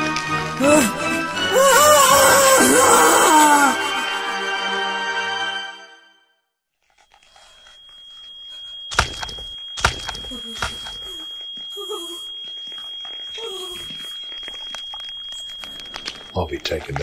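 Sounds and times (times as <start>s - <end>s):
high-pitched ringing tone: 6.8s - 17.0s.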